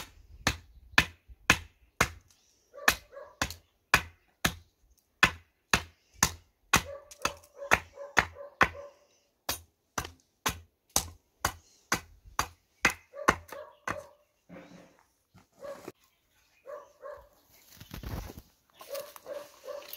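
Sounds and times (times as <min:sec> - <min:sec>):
axe chopping wooden board: 0:00.0 - 0:02.3, 0:02.9 - 0:14.1.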